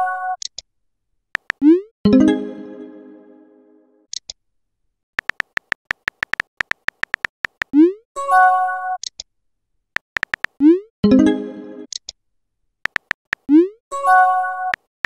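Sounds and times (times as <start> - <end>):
keyboard typing clicks: 1.4 - 1.8, 5.2 - 7.9, 10.0 - 10.7, 12.9 - 13.7.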